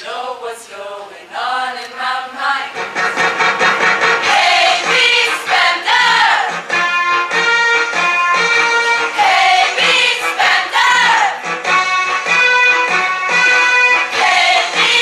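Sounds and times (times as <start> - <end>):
women's chorus singing: 0.0 - 6.7, 9.1 - 11.4, 14.0 - 15.0.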